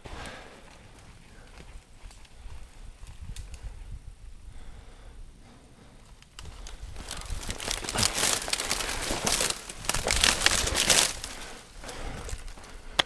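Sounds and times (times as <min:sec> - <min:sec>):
twigs crackling against clothing: 0:00.0 - 0:03.8, 0:06.0 - 0:13.0.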